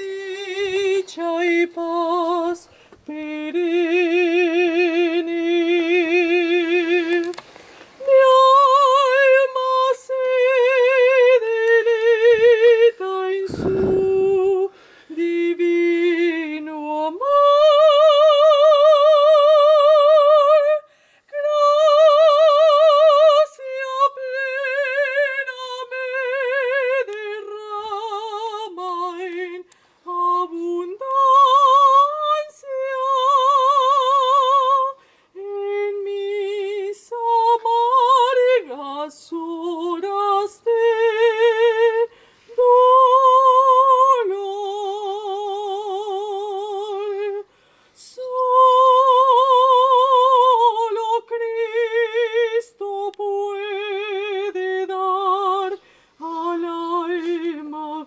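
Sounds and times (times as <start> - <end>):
short breaths: 2.6 - 3.0, 7.4 - 8.0, 13.4 - 15.2, 20.9 - 21.3, 35.0 - 35.4, 42.1 - 42.6, 47.4 - 48.0, 55.8 - 56.2
woman singing solo: 8.0 - 58.0.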